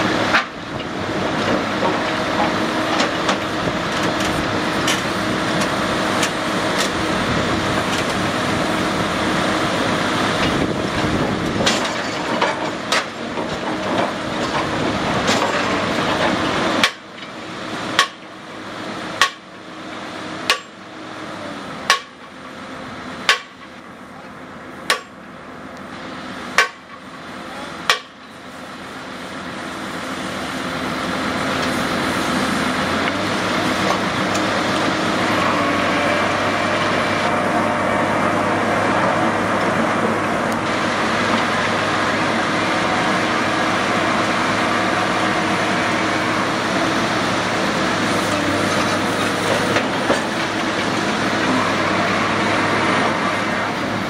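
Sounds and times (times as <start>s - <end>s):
drill rig engine running: 0.0s - 54.0s
hammer striking steel: 20.5s - 20.8s, 21.9s - 22.2s, 23.3s - 23.7s, 24.9s - 25.2s, 26.6s - 26.9s, 27.9s - 28.2s.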